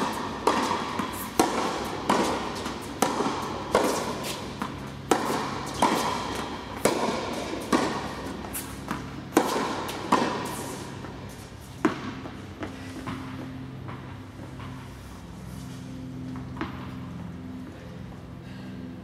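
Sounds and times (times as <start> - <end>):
tennis ball bouncing on court: 0.0 - 14.9, 16.1 - 17.2
tennis ball struck by rackets: 0.0 - 14.9.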